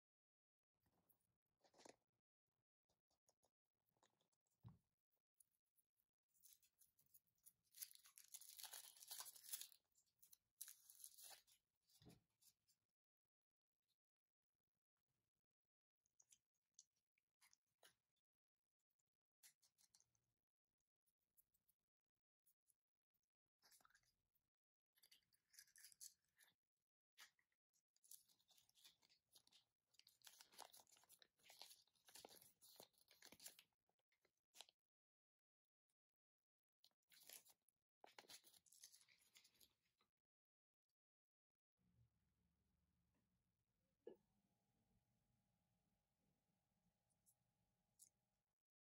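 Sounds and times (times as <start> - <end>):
foil wrapper crinkling and tearing: 7.6 - 11.6, 28.0 - 33.6.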